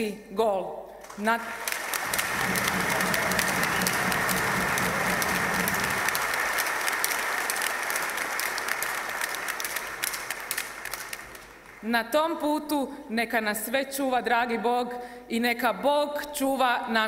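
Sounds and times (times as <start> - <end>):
large crowd applauding: 1.1 - 11.9.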